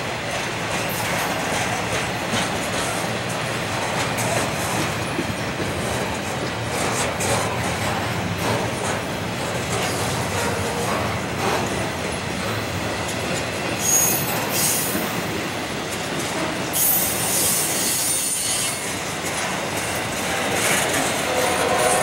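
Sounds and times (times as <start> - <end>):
train wheels rumbling on rail: 0.0 - 22.0
high-pitched wheel squeals: 13.8 - 14.9, 16.8 - 18.8.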